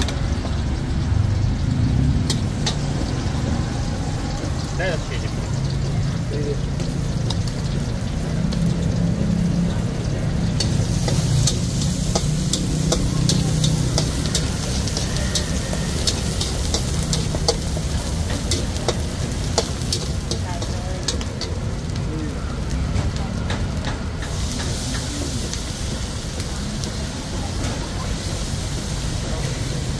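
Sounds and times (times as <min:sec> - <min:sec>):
egg sizzling in a wok: 0:00.0 - 0:29.9
metal utensils clacking on wok: 0:02.2 - 0:03.1, 0:09.8 - 0:22.1.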